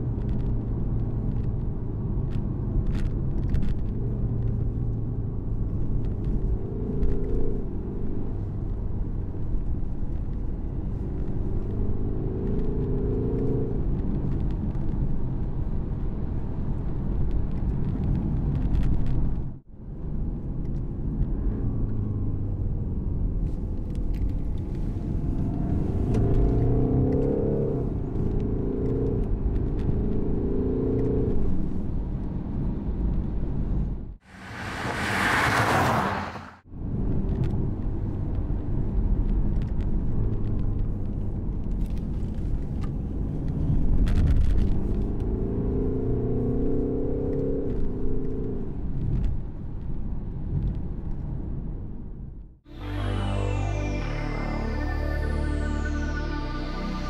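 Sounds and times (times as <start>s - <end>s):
road rumble: 0.0s - 57.0s
car engine drone from inside cabin: 19.2s - 35.1s, 52.1s - 57.0s
loud rushing noise: 34.3s - 36.6s, 52.7s - 57.0s.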